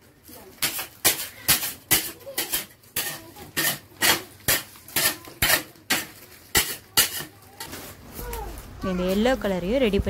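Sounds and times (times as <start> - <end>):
metal scraper scraping candy slab: 0.6 - 7.6.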